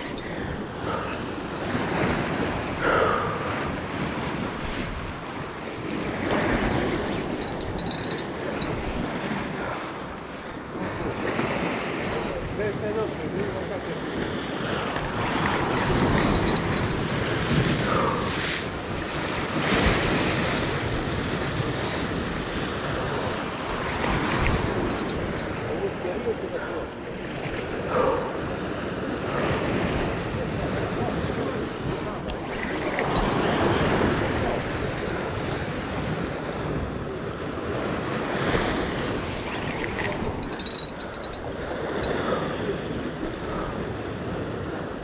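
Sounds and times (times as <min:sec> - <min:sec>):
sea waves washing against rocks: 0:00.0 - 0:45.0
wind buffeting microphone: 0:14.0 - 0:45.0.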